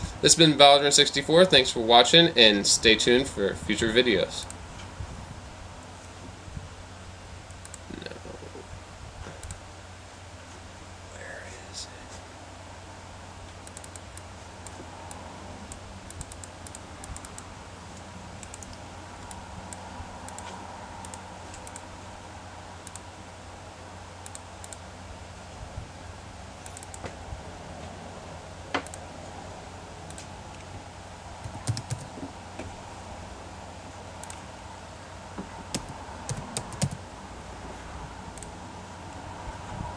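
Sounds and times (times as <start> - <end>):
low room hum: 0.0 - 39.9
computer mouse and key clicks: 7.5 - 8.0, 9.4 - 9.6, 13.5 - 17.5, 18.4 - 21.9, 22.8 - 23.1, 24.2 - 24.8, 26.6 - 27.1, 28.8 - 29.0, 30.1 - 30.7, 31.4 - 32.2, 34.2 - 34.4, 35.7 - 37.0.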